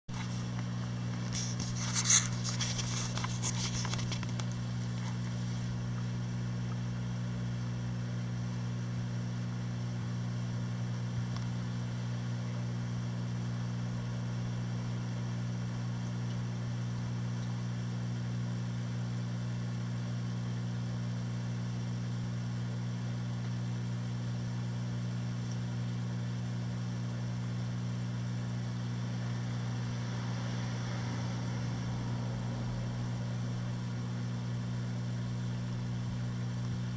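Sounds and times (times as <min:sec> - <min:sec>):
aquarium pumps humming: 0:00.1 - 0:36.9
handling noise: 0:01.1 - 0:05.3.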